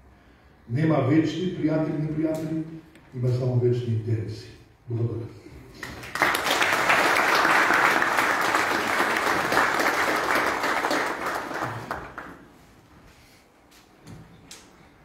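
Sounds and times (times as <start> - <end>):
audience applauding: 5.7 - 12.6.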